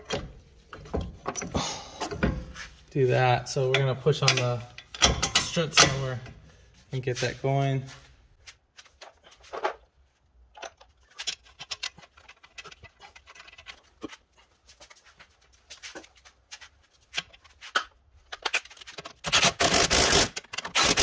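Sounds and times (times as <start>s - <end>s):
light metallic clicks and knocks: 3.6s - 6.4s.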